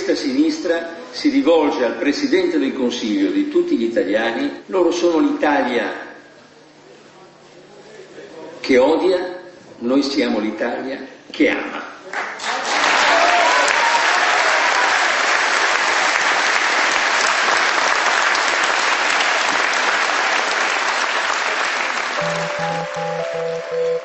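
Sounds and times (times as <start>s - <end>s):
large crowd applauding: 12.1s - 24.0s
music with a regular pulse: 22.2s - 24.0s.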